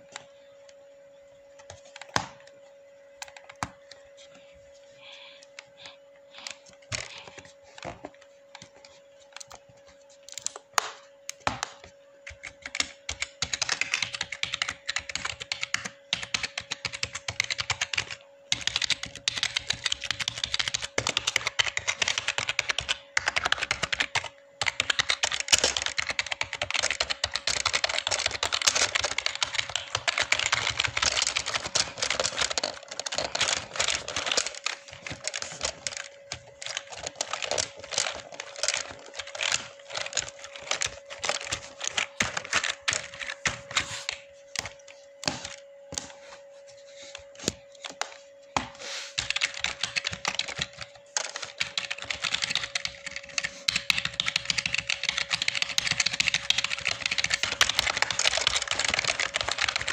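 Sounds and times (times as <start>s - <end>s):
computer keyboard typing: 5.4s - 46.1s, 49.2s - 59.9s.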